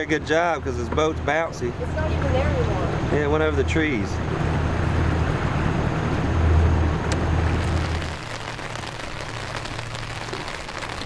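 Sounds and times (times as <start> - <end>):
low boat engine drone: 0.0 - 11.0
rain falling on river: 7.3 - 11.0
rain pattering on umbrella: 7.5 - 11.0.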